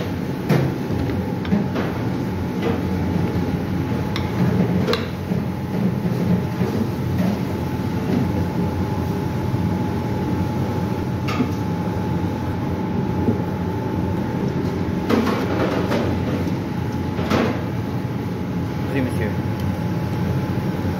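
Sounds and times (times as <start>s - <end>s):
low kitchen rumble: 0.0s - 20.9s.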